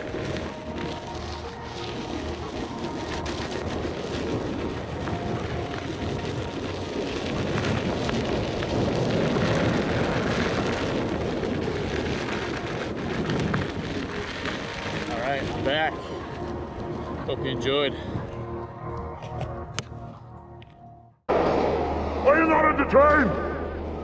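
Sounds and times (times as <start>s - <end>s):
tyre rolling over dirt: 0.0s - 18.0s
wind buffeting microphone: 0.0s - 20.2s.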